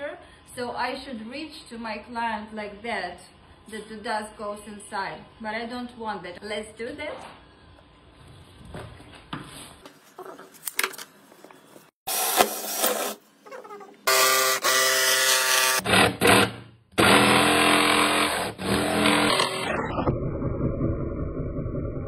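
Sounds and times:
jigsaw cutting wood: 0:14.1 - 0:20.0
cordless drill boring into wood: 0:17.0 - 0:19.7.

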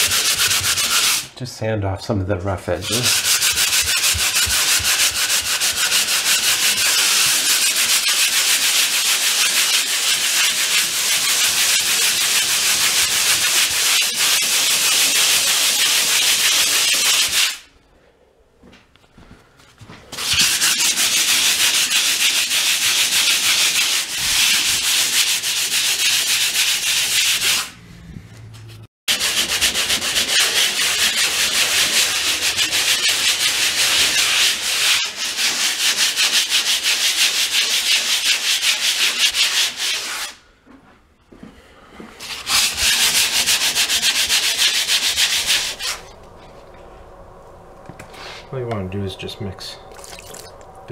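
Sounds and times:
hand sanding scratchy rasp: 0:00.0 - 0:01.3, 0:02.7 - 0:17.7, 0:20.1 - 0:27.7, 0:28.6 - 0:40.4, 0:42.2 - 0:46.1.

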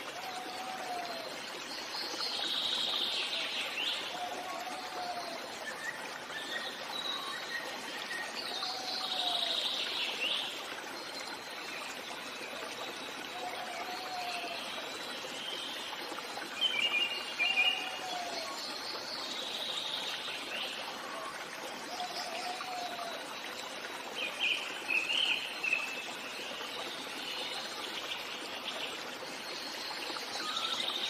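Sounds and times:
stream trickling: 0:00.0 - 0:31.0
birdsong: 0:24.2 - 0:31.0.

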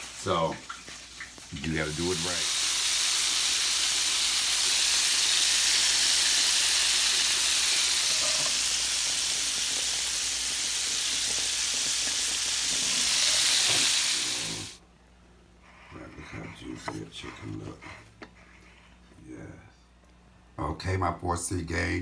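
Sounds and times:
chicken sizzling in hot grease: 0:00.0 - 0:14.8.

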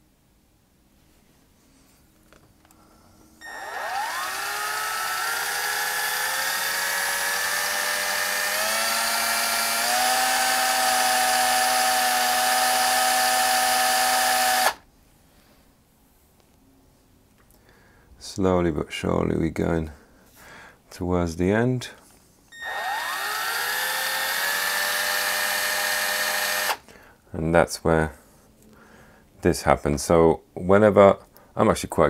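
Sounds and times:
electric drill whining: 0:03.4 - 0:14.8, 0:22.5 - 0:26.8.

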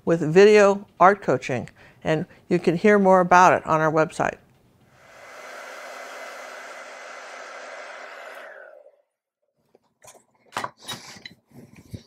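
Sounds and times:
hair dryer blowing: 0:04.9 - 0:09.1.

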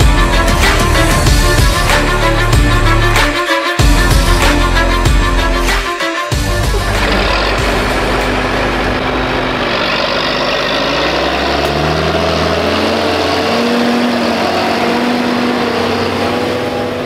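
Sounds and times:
tractor engine running: 0:06.4 - 0:17.0.

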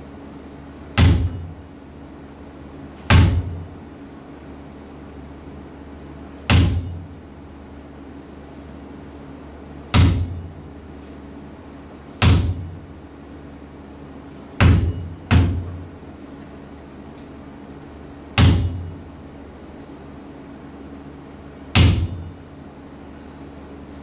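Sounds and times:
steady low hum: 0:00.0 - 0:24.0
heavy echoing thuds: 0:12.2 - 0:12.8, 0:14.6 - 0:15.8.

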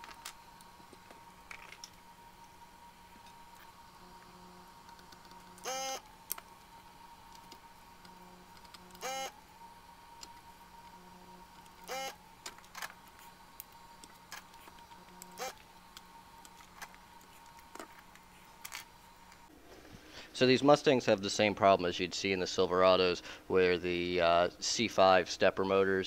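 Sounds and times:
faint high whine: 0:00.0 - 0:26.0
desoldering pump bursts: 0:04.9 - 0:06.6, 0:07.3 - 0:09.5, 0:11.4 - 0:18.8.

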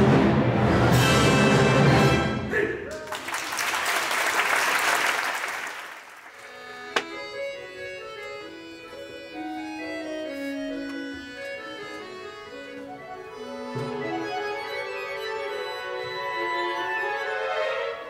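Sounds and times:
audience applause: 0:02.9 - 0:06.5
solo accordion playing: 0:06.3 - 0:18.0.

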